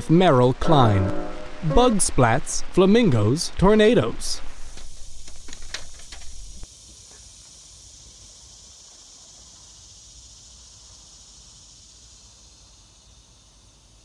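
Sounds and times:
insect chorus: 3.9 - 14.0.

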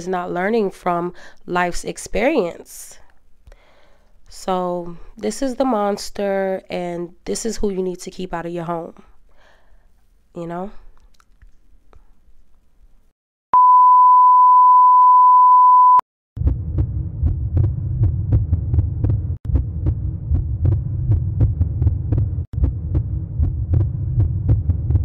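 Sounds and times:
pulsing bass loop: 16.4 - 25.0.

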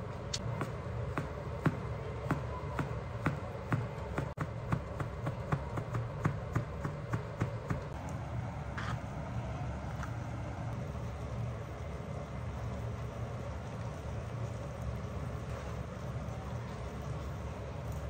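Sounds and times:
low hum: 0.0 - 18.0
knife chopping on cutting board: 0.4 - 7.9.

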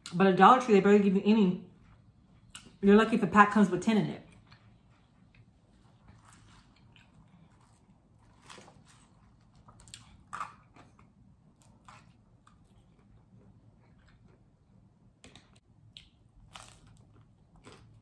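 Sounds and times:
person chewing crunchy bread: 4.4 - 14.9, 15.8 - 18.0.

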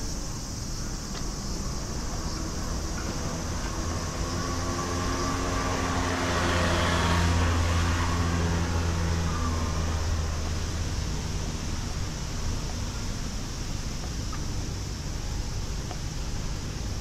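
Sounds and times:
motor vehicle passing by: 1.8 - 12.2.

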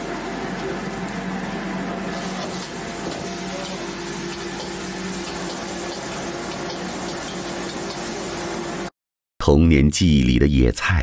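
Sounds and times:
water boiling and bubbling: 0.0 - 8.9.

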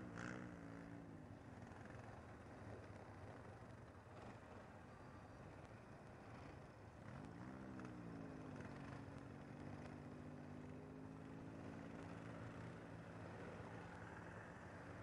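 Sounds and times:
quad bike engine revving and idling: 0.0 - 2.5, 7.1 - 15.0.

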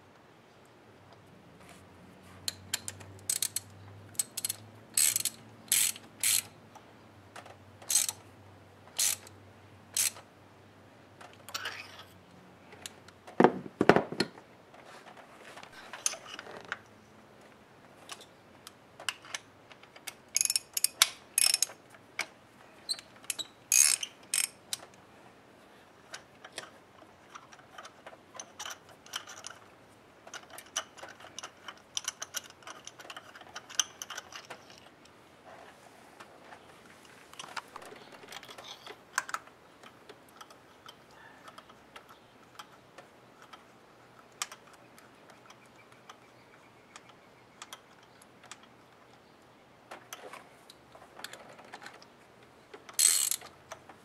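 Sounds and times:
socket ratchet clicking: 2.5 - 6.5, 7.8 - 8.2, 9.0 - 9.3, 9.9 - 10.2, 20.1 - 21.8, 22.9 - 24.8, 52.9 - 53.5.

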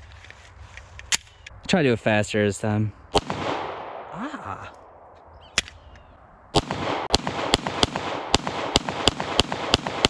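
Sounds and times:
pistol shots: 3.1 - 4.1, 6.6 - 10.0.

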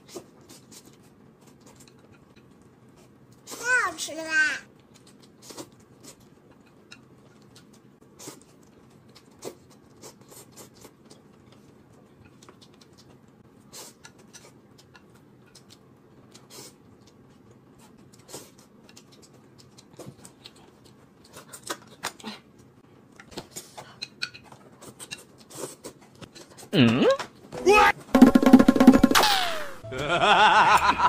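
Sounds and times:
noodles slurped and chewed: 4.8 - 22.6.

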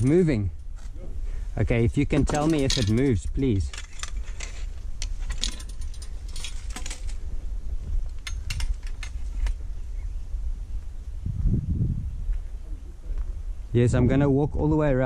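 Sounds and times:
low steady rumble: 0.0 - 15.0
metallic clicks and rattles: 1.8 - 7.2, 8.0 - 9.6.

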